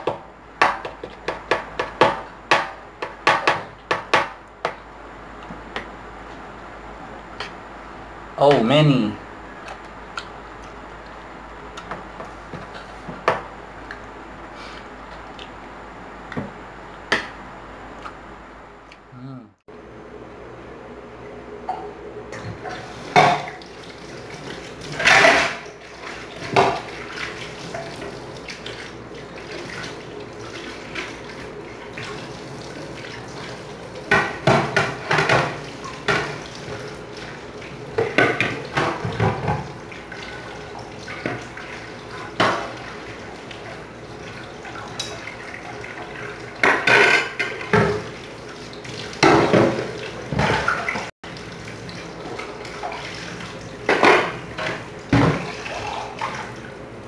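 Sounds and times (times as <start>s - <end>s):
dishes clattering: 21.7s - 23.6s, 24.9s - 25.7s, 46.6s - 48.1s, 49.2s - 51.1s, 53.9s - 56.2s
tap water running: 21.7s - 57.0s.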